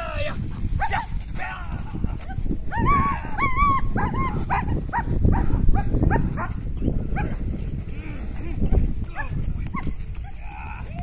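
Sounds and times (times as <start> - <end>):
dog barking excitedly: 4.0 - 6.5.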